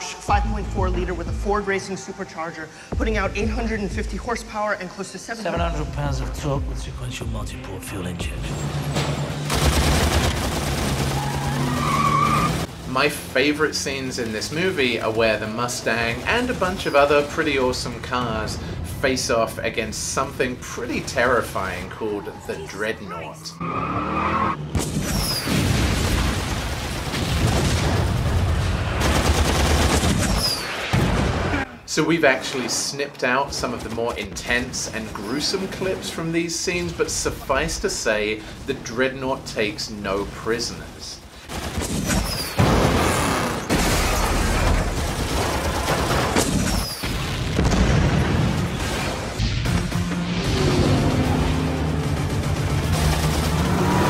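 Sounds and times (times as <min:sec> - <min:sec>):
explosion blast: 0:24.7 - 0:31.7, 0:42.6 - 0:52.0.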